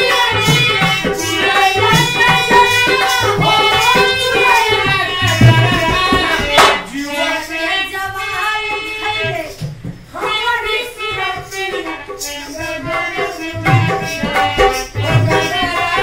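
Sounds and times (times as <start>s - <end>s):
hand drum beat: 0.0s - 6.9s, 12.7s - 16.0s.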